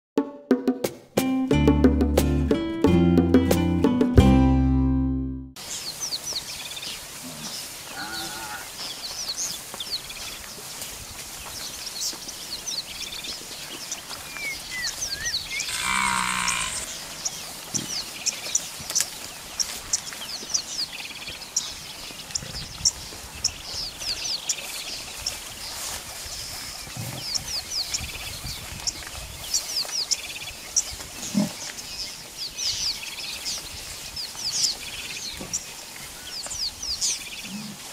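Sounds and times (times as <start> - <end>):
animal call: 7.2 - 8.8, 14.9 - 17.9
bird chirps: 11.6 - 37.7.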